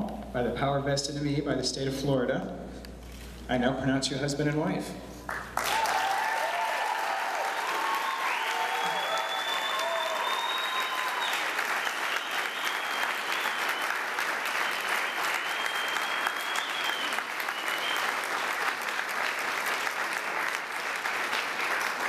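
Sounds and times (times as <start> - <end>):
people clapping: 5.3 - 22.0.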